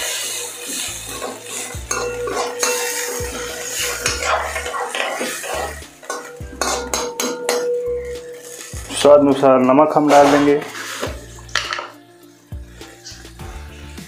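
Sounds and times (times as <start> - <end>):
metal spatula scraping a wok: 0.0 - 9.0, 9.6 - 11.9.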